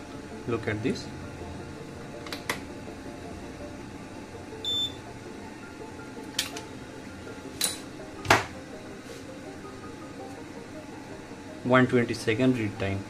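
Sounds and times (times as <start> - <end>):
steady low hum: 0.0 - 13.0
short electronic beep: 4.6 - 5.0.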